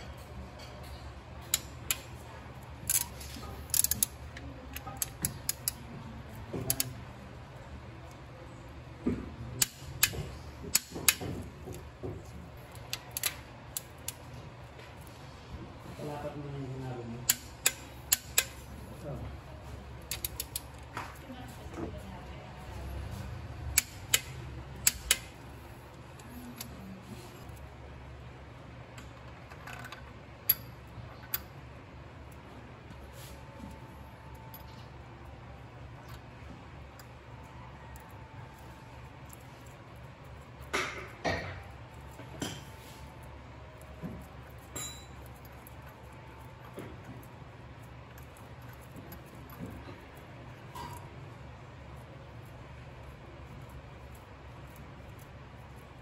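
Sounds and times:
low steady hum: 0:00.0 - 0:56.0
wrench clicking on bolts: 0:01.4 - 0:02.2, 0:02.8 - 0:05.8, 0:06.6 - 0:07.0, 0:09.6 - 0:11.2, 0:12.7 - 0:14.2, 0:17.2 - 0:18.7, 0:20.0 - 0:20.8, 0:23.7 - 0:25.5, 0:29.7 - 0:30.7
metallic wrench clicks: 0:02.9 - 0:03.1, 0:03.7 - 0:05.8, 0:20.1 - 0:20.8, 0:23.7 - 0:25.4.

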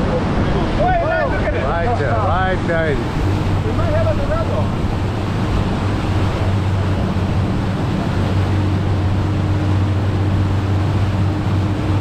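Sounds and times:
boat engine humming: 0:00.0 - 0:12.0
water rushing in wake: 0:00.0 - 0:12.0.

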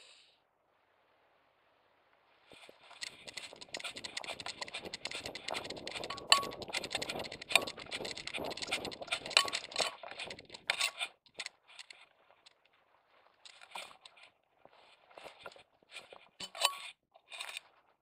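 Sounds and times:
grass brushing against camera: 0:02.4 - 0:16.6
camera rattling in harness: 0:02.5 - 0:18.0.

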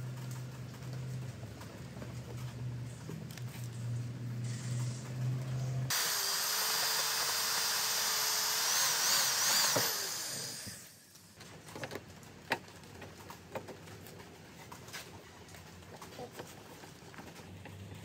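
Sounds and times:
power drill running on plastic: 0:05.9 - 0:11.0.

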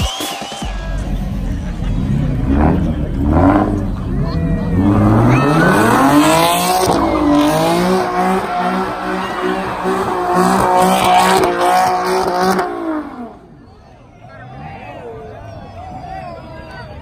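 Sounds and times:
tires squealing: 0:00.0 - 0:17.0
car engine revving hard: 0:01.0 - 0:13.5.

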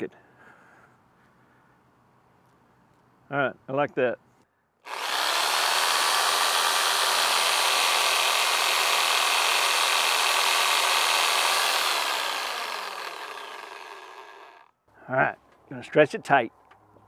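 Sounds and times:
reciprocating saw cutting pipe: 0:04.9 - 0:14.7.

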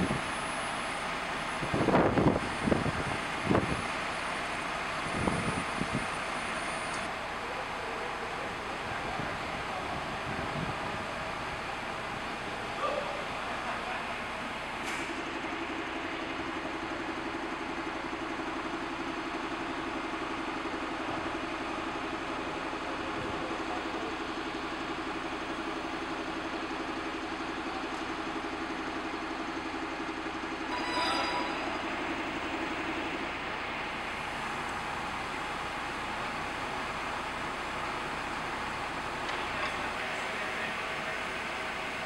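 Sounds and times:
crane engine and hydraulics humming: 0:00.0 - 0:42.0
short rising squeal: 0:30.7 - 0:33.4.

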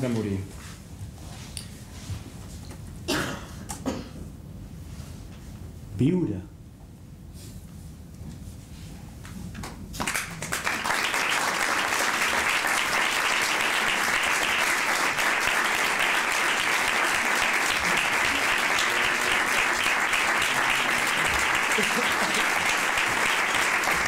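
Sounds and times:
audience applauding: 0:10.0 - 0:24.0.

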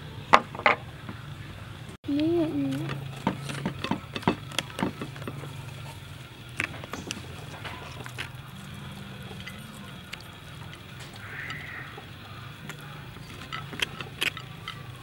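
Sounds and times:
steady low hum: 0:00.0 - 0:15.0
knife scraping and tapping shell: 0:02.8 - 0:08.5, 0:09.4 - 0:15.0.

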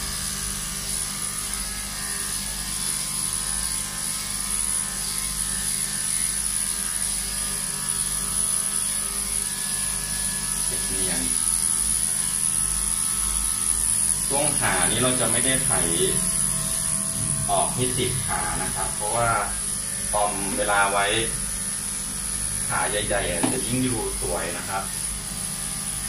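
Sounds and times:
electric clipper buzzing: 0:00.0 - 0:26.0.

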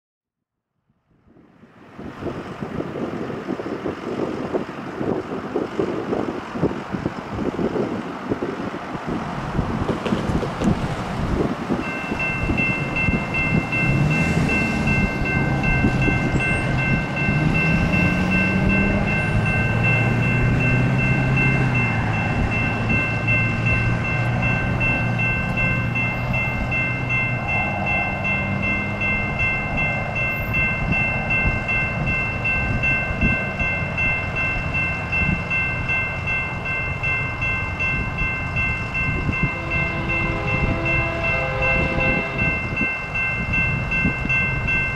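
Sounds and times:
diesel locomotives running: 0:01.2 - 0:44.9
crossing signal bell ringing: 0:11.4 - 0:44.9.

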